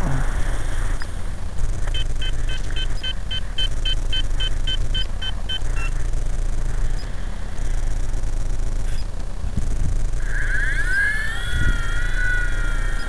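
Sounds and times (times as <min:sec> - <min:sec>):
steady low rumble: 0:00.0 - 0:13.0
electronic beeps: 0:01.9 - 0:06.0.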